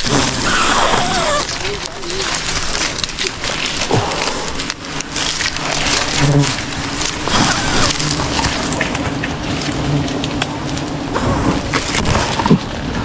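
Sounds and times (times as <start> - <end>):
bees humming: 0.0 - 1.8, 5.7 - 11.4
dry fronds rustling and snapping: 0.0 - 13.0.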